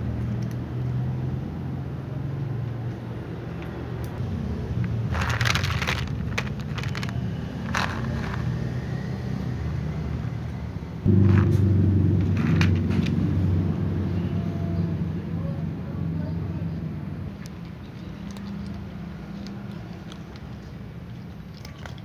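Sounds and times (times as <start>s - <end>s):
low mechanical rumble: 0.0s - 22.0s
rustles: 4.8s - 8.6s.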